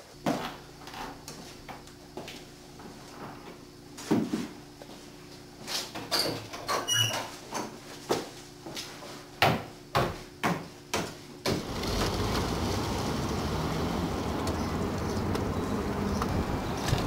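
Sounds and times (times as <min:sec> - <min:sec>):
wind noise on microphone: 0:16.0 - 0:17.0.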